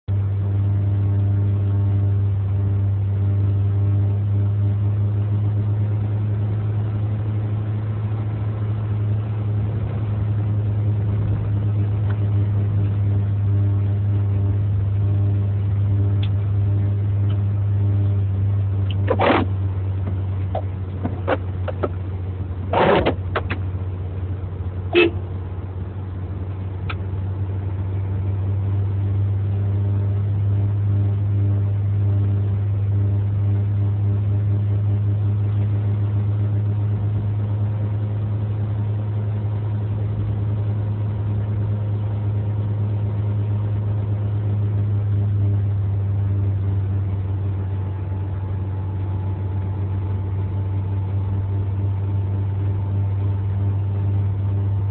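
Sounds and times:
car engine and road noise: 0.0s - 54.9s.

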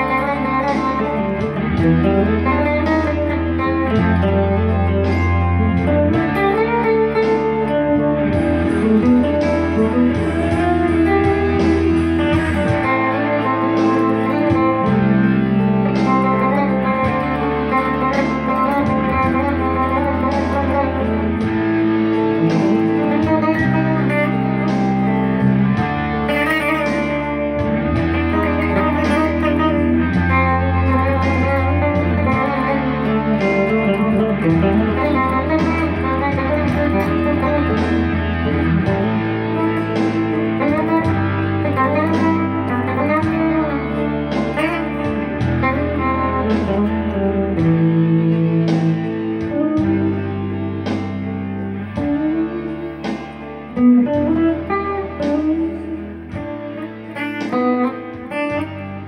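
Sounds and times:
electric guitar blues jam: 0.0s - 59.0s
low bass notes: 0.0s - 59.0s.

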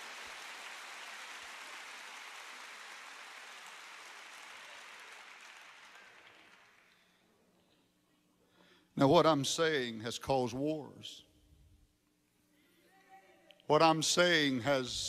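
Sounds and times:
large audience applauding: 0.0s - 7.2s.

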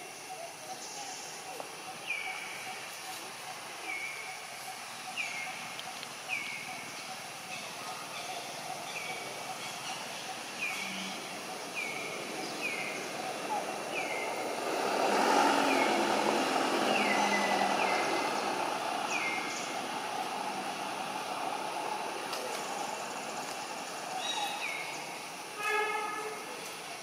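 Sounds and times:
outdoor rumble: 10.3s - 25.6s.

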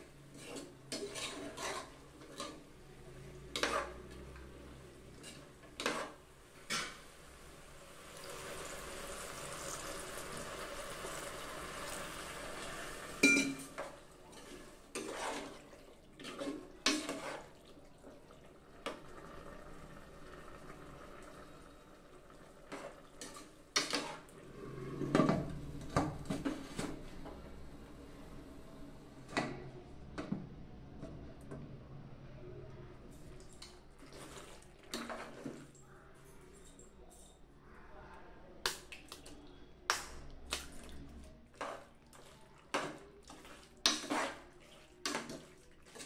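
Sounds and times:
spoon clinking against pot: 13.2s - 13.9s.

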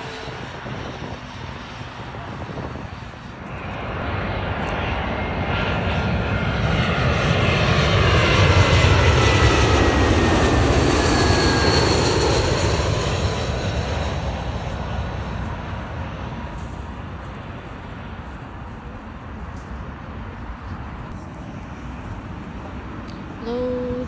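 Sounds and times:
jet airliner passing overhead: 0.0s - 24.0s.

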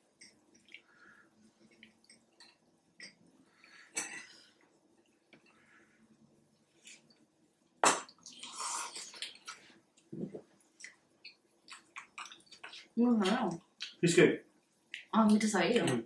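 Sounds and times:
chewing smacks: 10.7s - 14.0s.

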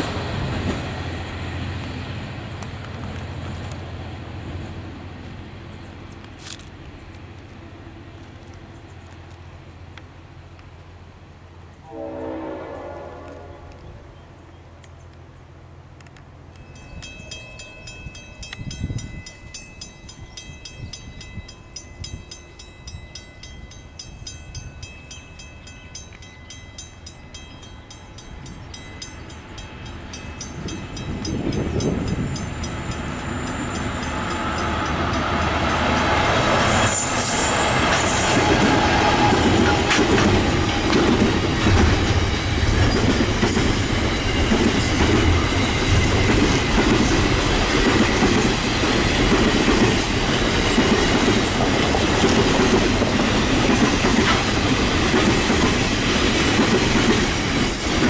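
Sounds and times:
railway warning bell ringing: 16.4s - 58.0s
freight train wagons clattering: 25.7s - 58.0s.

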